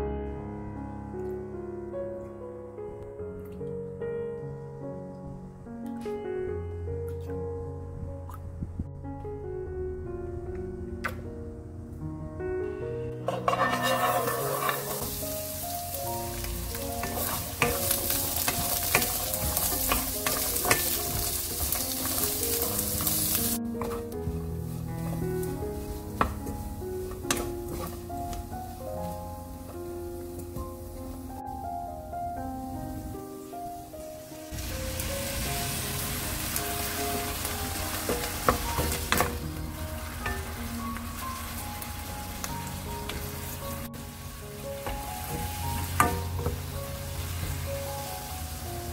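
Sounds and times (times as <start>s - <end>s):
garlic sizzling in hot oil: 13.2s - 31.4s, 33.0s - 48.9s
spatula tapping pan: 13.3s - 15.3s, 16.4s - 24.4s, 25.0s - 28.5s, 37.9s - 39.5s, 44.8s - 46.8s
wooden spatula stirring: 13.3s - 30.6s.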